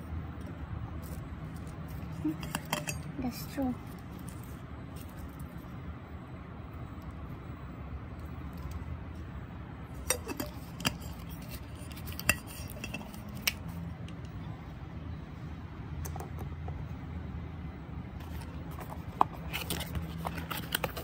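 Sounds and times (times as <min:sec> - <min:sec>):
metal water bottle clinks and knocks: 0:02.3 - 0:03.1, 0:10.0 - 0:13.6.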